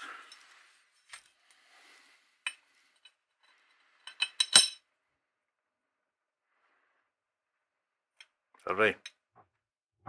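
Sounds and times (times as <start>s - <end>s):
light metal clinks: 2.4s - 4.8s.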